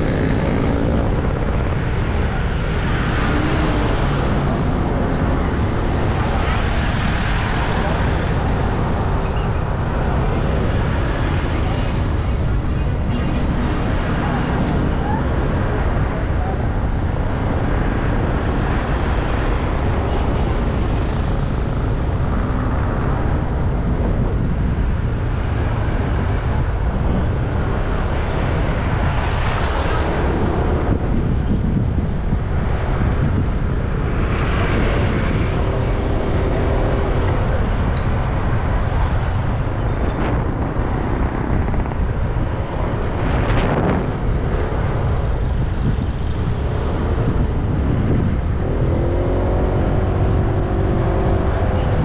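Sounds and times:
passing traffic: 0:00.0 - 0:52.0
road and traffic noise: 0:00.0 - 0:52.0
wind rumbling on microphone: 0:00.0 - 0:52.0.

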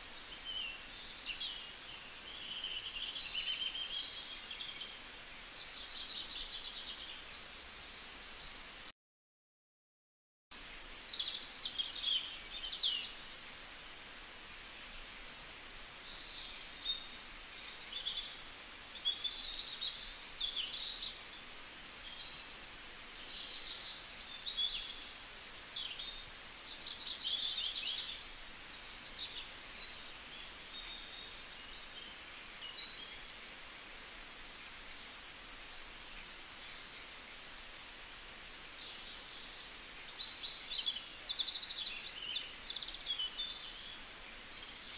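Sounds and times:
steady hiss: 0:00.0 - 0:08.9, 0:10.6 - 0:44.9.

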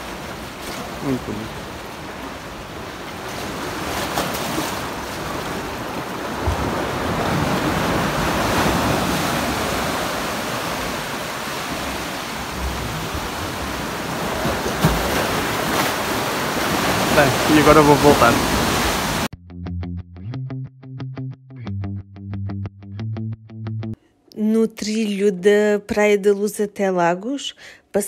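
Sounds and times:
sea waves washing against rocks: 0:00.0 - 0:19.3.

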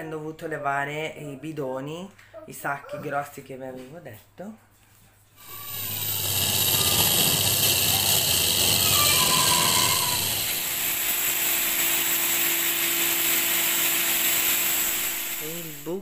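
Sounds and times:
power drill whining: 0:05.4 - 0:16.0.

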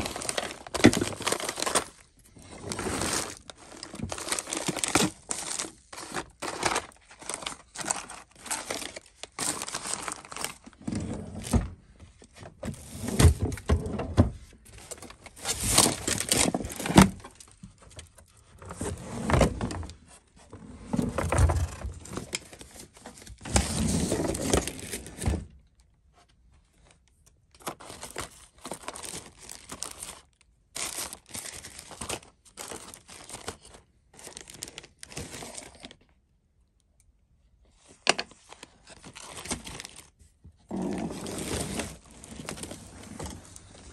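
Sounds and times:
plastic packaging crinkling: 0:00.0 - 0:11.5, 0:14.7 - 0:18.1, 0:27.6 - 0:36.0, 0:38.6 - 0:40.2.

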